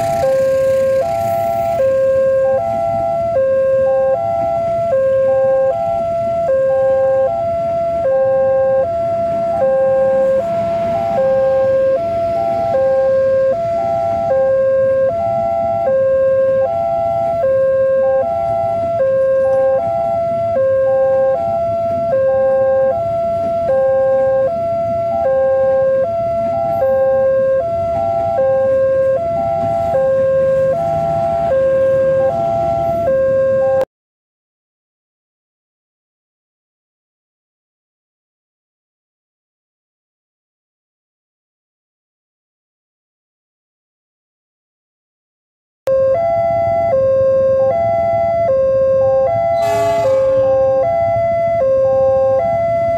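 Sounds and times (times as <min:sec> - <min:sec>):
train rumbling past: 0:00.0 - 0:01.8, 0:49.6 - 0:51.4
level crossing two-tone alarm: 0:00.0 - 0:33.9, 0:45.9 - 0:52.9.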